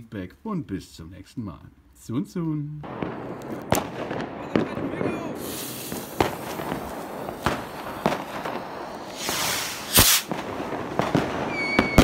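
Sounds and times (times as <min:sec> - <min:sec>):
sharp pops: 0:02.8 - 0:12.0
rocket lifting off with rushing burst: 0:05.3 - 0:12.0
fuse sputtering and hissing: 0:05.4 - 0:07.9.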